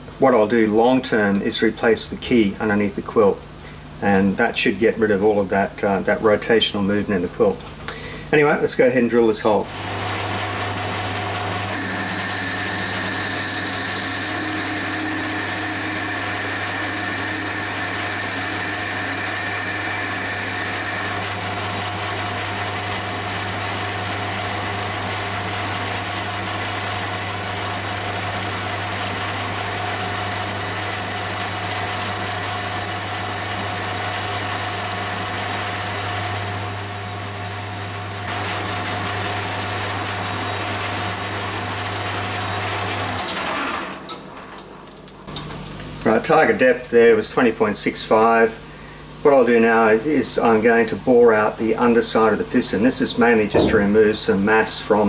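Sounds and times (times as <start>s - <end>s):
metal lathe humming: 9.4s - 43.4s
drill whining: 9.7s - 36.6s, 38.2s - 41.4s.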